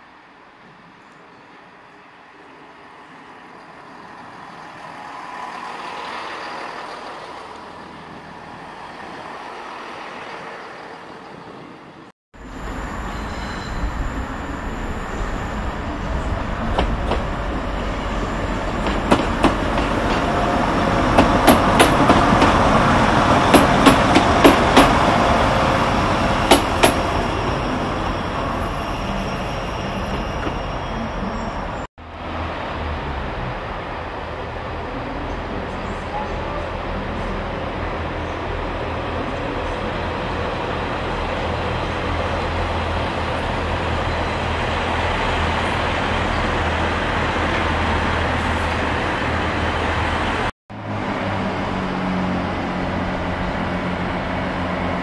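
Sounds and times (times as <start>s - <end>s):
diesel train passing: 0.0s - 55.0s
low diesel train rumble: 11.6s - 55.0s
train wheels clicking over rail joints: 16.5s - 25.2s, 26.5s - 27.1s.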